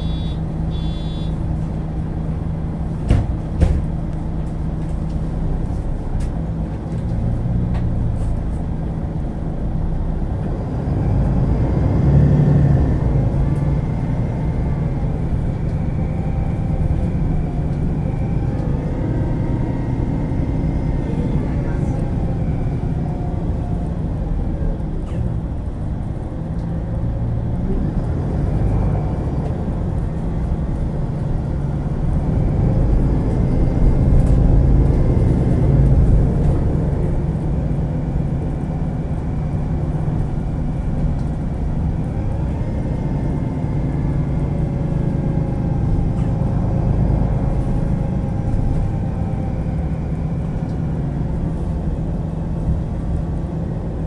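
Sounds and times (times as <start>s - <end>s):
bus engine rumbling: 0.0s - 54.0s.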